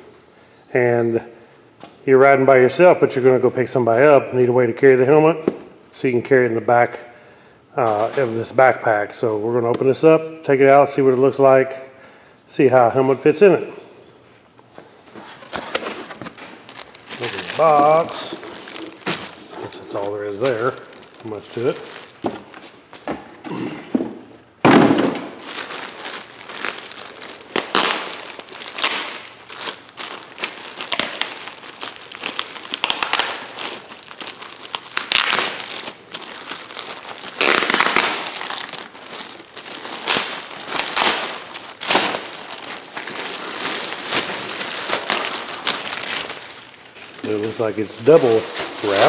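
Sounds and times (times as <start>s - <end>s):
plastic bag crinkling: 15.2s - 22.9s, 25.3s - 49.0s.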